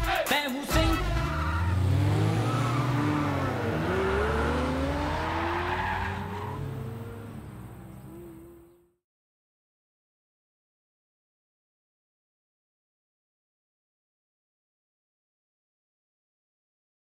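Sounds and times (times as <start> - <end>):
car engine accelerating: 0.7 - 9.0.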